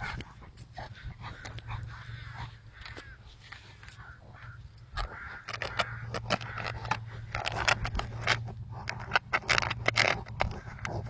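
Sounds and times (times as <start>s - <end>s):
low steady hum: 0.0s - 11.0s
dog clicks knocks and scrapes: 4.9s - 11.0s.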